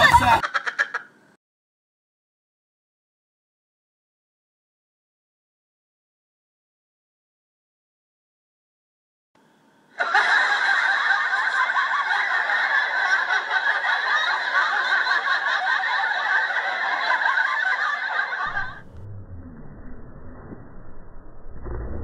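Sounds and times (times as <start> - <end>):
group laughing and snickering: 0.0 - 1.2, 10.0 - 19.1
faint low rumble: 18.5 - 22.0.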